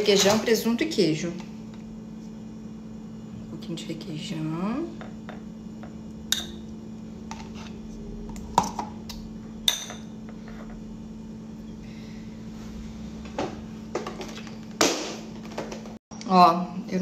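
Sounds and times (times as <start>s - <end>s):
low hum: 1.5s - 13.9s
spoon clinking glass bowl: 6.3s - 6.7s, 9.7s - 10.1s.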